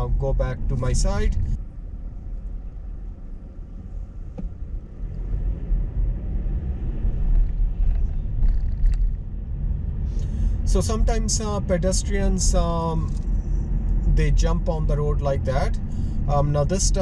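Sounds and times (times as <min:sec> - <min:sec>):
car cabin road and engine rumble: 0:00.0 - 0:17.0.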